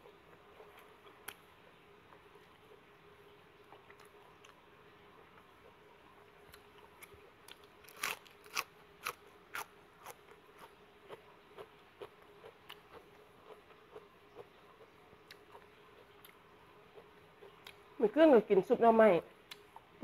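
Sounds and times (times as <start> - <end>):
crunchy vegetable chewing: 6.5 - 17.8.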